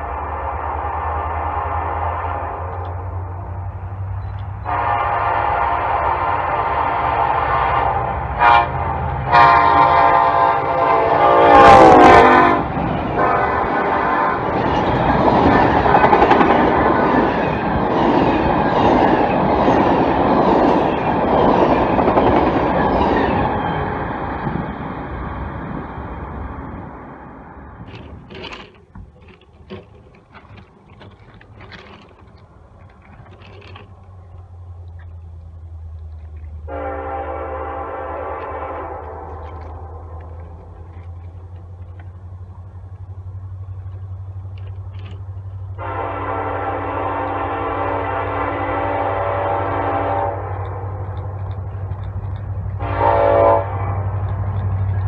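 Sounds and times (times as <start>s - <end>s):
locomotive horn: 0.2s - 3.2s, 4.6s - 14.6s, 36.6s - 40.9s, 45.7s - 51.3s, 52.7s - 54.4s
wheel clicks on rail joints: 2.6s - 5.1s, 10.8s - 25.4s, 26.3s - 36.8s, 38.1s - 46.0s, 47.1s - 55.0s.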